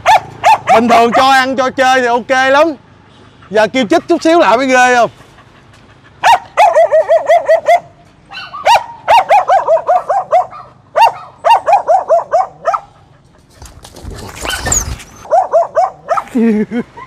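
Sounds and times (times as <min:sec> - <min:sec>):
dog barking and yelping: 0:00.0 - 0:01.5, 0:03.5 - 0:16.4
rustling scuffle: 0:13.5 - 0:15.3.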